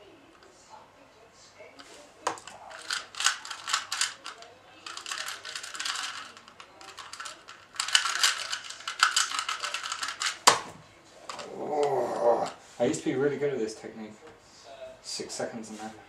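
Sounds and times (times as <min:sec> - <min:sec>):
puzzle cube clicking: 0:02.3 - 0:10.7.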